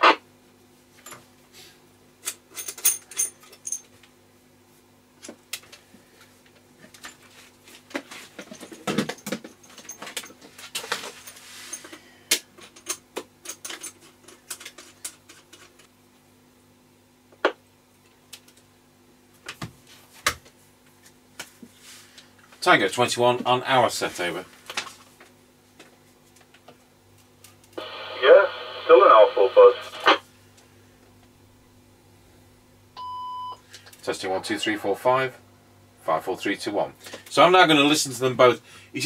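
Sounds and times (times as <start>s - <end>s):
radio cables clicking and rattling: 27.8s - 30.2s.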